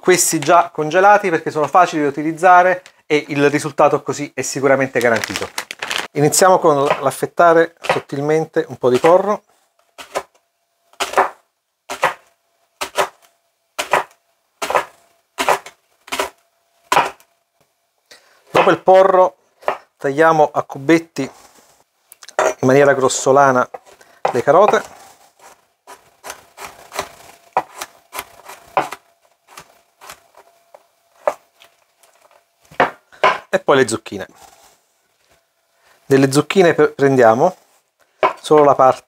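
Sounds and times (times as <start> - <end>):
knife chopping on plastic board: 7.8 - 8.1, 11.0 - 12.2, 12.8 - 13.2, 13.8 - 16.3, 16.9 - 17.2, 25.9 - 30.2.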